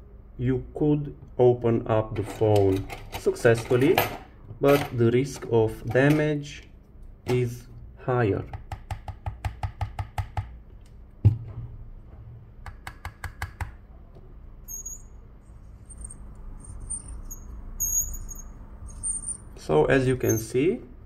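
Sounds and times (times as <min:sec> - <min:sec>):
faint high squeaks: 0:14.6 - 0:19.6, 0:20.2 - 0:20.6.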